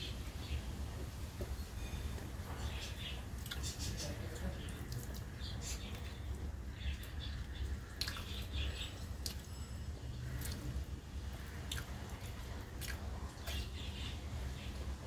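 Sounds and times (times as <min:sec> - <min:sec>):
low steady hum: 0:00.0 - 0:15.0
wet squishes of fingers mixing rice: 0:03.3 - 0:09.6, 0:10.2 - 0:14.6
close-up chewing: 0:11.6 - 0:13.7.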